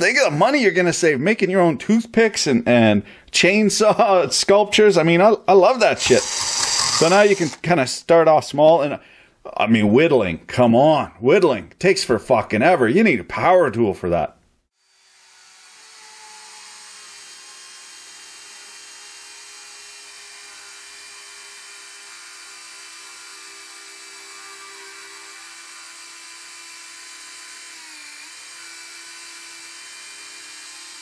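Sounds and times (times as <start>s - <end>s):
chainsaw cutting into log: 5.8s - 7.6s, 14.8s - 31.0s
electric motor whine: 5.8s - 7.6s.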